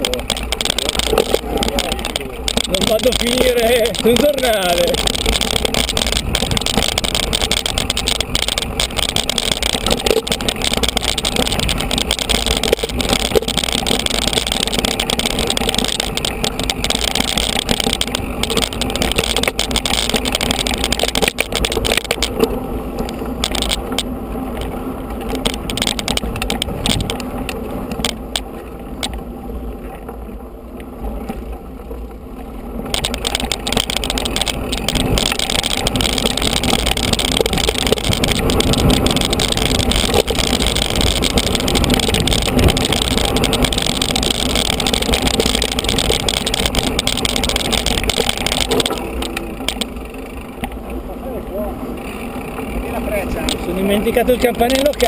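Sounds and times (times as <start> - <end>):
bike rattling and knocking: 0.0 - 55.0
wind rumble on microphone: 0.0 - 55.0.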